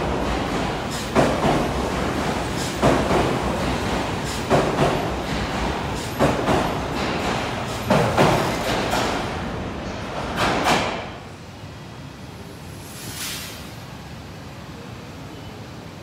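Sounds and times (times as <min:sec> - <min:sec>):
train wheels clacking: 0:00.0 - 0:11.2
train cars rumbling past: 0:00.0 - 0:16.0.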